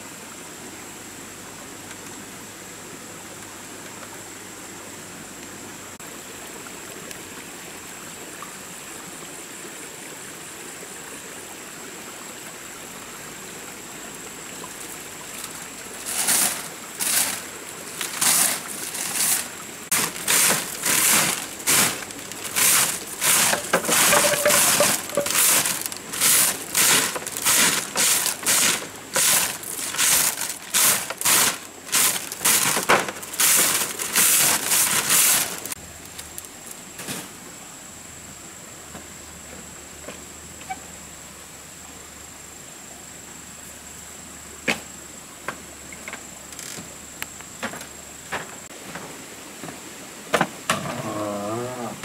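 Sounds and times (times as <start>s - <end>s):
broom sweeping floor: 16.0s - 35.8s.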